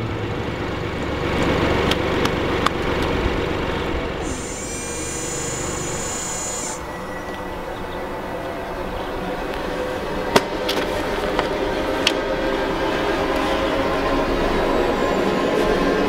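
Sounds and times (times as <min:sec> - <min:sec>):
high mechanical whir: 0:04.1 - 0:07.1.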